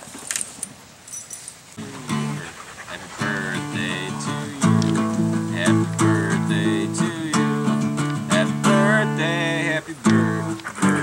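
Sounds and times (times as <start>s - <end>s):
acoustic guitar strumming: 1.8s - 2.6s, 3.2s - 11.0s.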